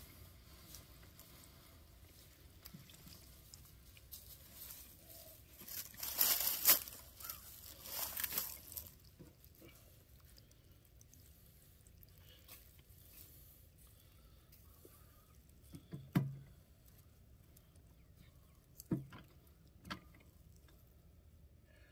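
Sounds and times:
crunchy handling noises: 0.6s - 21.0s.

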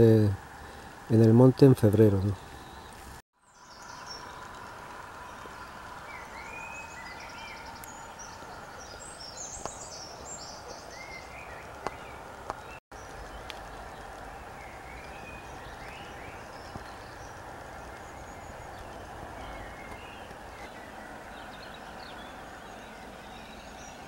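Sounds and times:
birds chirping and trilling: 0.0s - 24.0s.

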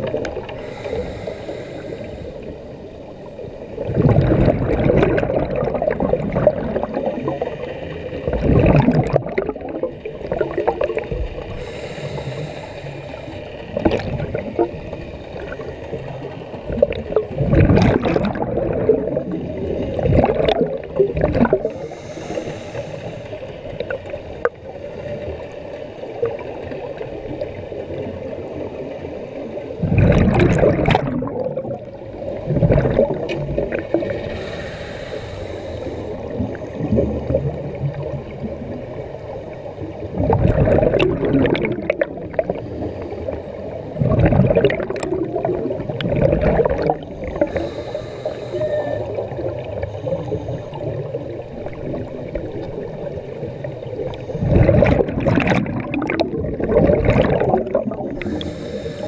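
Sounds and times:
underwater background: 0.0s - 59.0s
regulator hiss on inhalation: 0.6s - 2.5s, 11.5s - 13.5s, 21.6s - 23.5s, 34.2s - 36.3s, 47.4s - 49.2s, 58.2s - 59.0s
burst of bubbles: 3.8s - 7.4s, 8.2s - 11.2s, 13.7s - 14.7s, 16.7s - 21.8s, 29.8s - 31.9s, 32.5s - 34.1s, 40.2s - 42.6s, 44.0s - 47.6s, 54.4s - 58.6s.

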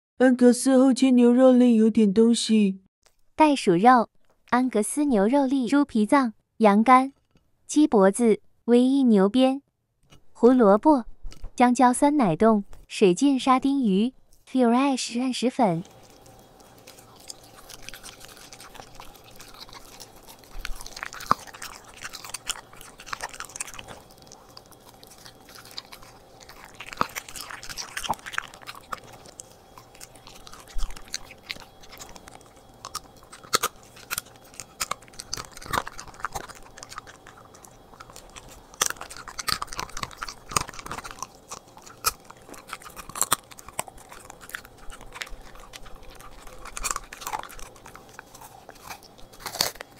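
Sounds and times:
faint steady hum: 11.0s - 49.9s
dog chewing meat: 15.6s - 49.9s.

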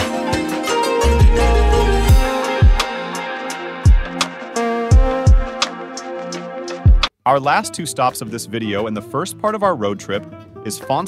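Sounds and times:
kick drum thumps: 2.1s - 2.9s, 3.9s - 4.2s, 4.9s - 5.6s, 6.9s - 7.1s.

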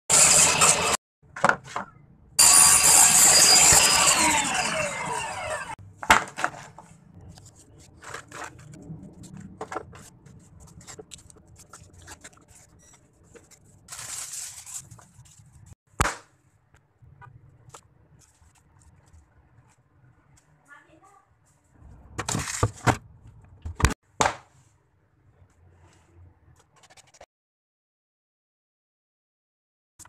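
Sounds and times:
power tool motor winding down: 2.4s - 5.8s.

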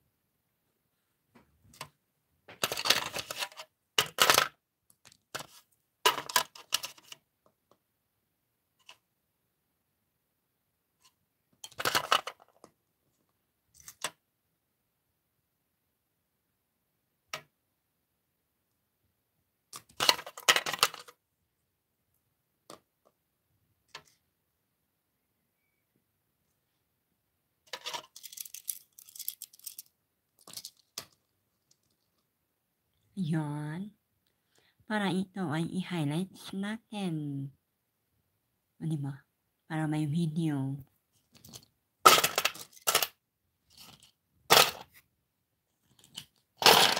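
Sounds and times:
plastic figurines clattering: 1.7s - 7.2s, 11.5s - 12.8s, 19.7s - 21.2s, 27.7s - 32.2s, 41.2s - 45.0s, 45.8s - 46.9s.

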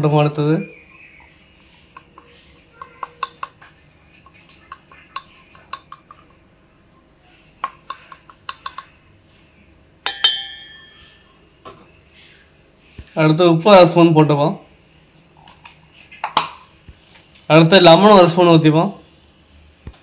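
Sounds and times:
spoon clicking and tapping: 4.3s - 6.4s, 7.6s - 9.0s.

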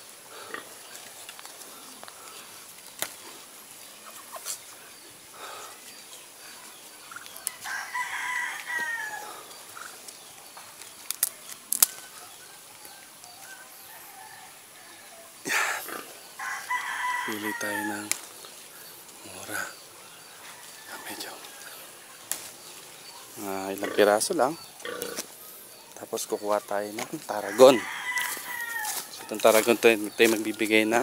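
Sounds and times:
leaves and twigs clicking and rustling: 0.0s - 31.0s
rooster crowing: 7.3s - 9.5s, 12.4s - 15.6s, 16.4s - 18.1s, 20.4s - 22.1s, 27.3s - 29.8s.

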